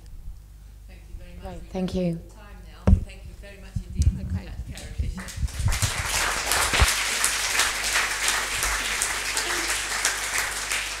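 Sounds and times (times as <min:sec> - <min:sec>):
low thumps: 0:02.8 - 0:06.9
audience applauding: 0:05.2 - 0:11.0.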